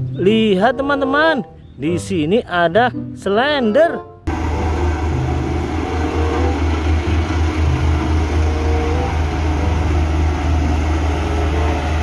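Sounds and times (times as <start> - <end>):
road roller diesel engine: 4.3 - 12.0.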